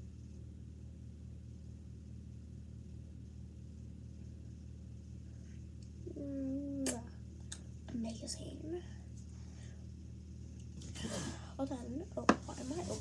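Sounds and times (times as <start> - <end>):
low hum with faint pulse: 0.0 - 13.0
girl humming: 6.1 - 7.1.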